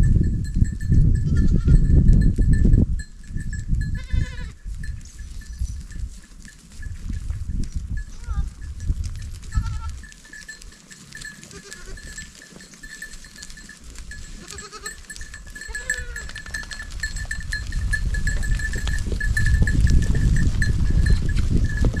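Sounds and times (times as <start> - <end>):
goat bell tinkling: 0.0 - 22.0
low rumble of herd: 0.0 - 22.0
goats bleating: 4.0 - 4.6, 9.5 - 10.1, 11.1 - 12.2, 14.2 - 16.5.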